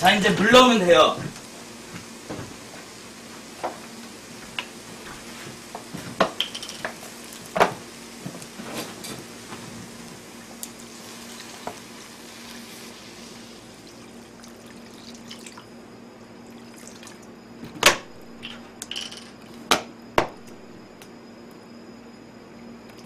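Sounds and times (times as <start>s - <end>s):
food sizzling in frying pan: 0.0s - 15.5s.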